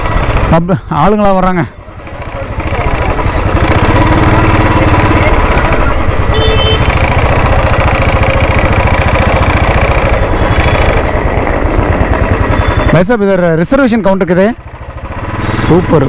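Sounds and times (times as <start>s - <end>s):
motorcycle engine running: 0.0s - 16.0s
brief high beep: 1.7s - 6.8s, 8.6s - 13.2s.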